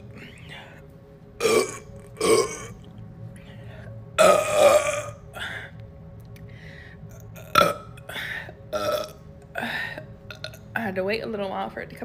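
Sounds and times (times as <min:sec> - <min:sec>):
woman burping: 0:01.4 - 0:02.8, 0:04.2 - 0:05.5, 0:07.4 - 0:08.1, 0:08.7 - 0:10.6.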